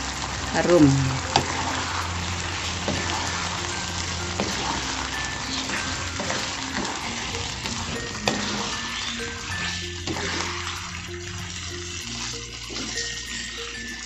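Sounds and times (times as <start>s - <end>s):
food frying in sauce: 0.0s - 14.0s
spatula tapping pan: 2.5s - 11.5s.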